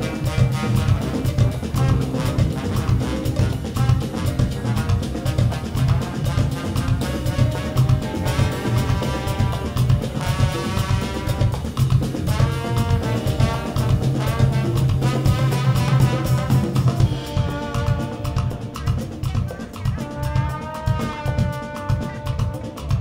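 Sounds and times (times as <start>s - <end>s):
live band horn-driven groove: 0.0s - 23.0s.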